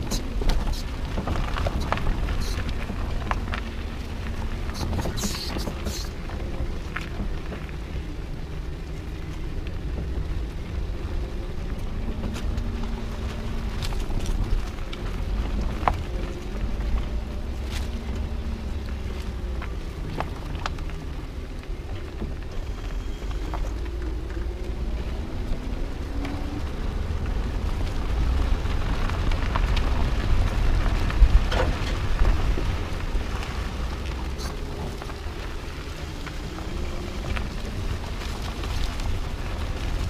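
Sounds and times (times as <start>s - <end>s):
leaves and twigs crackling: 0.0s - 40.0s
tyre rolling on dirt track: 0.0s - 40.0s
faint engine tone: 3.6s - 28.2s.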